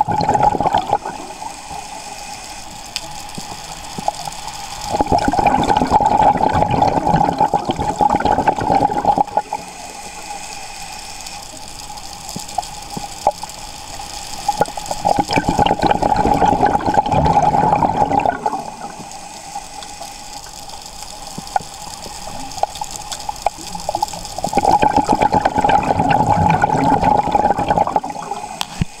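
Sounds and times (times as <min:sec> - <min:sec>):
underwater exhale bubbles: 0:00.0 - 0:02.1, 0:04.8 - 0:10.4, 0:14.5 - 0:20.5, 0:21.4 - 0:29.0
regulator hiss: 0:00.0 - 0:29.0
faint clicks: 0:01.8 - 0:04.9, 0:19.0 - 0:24.6.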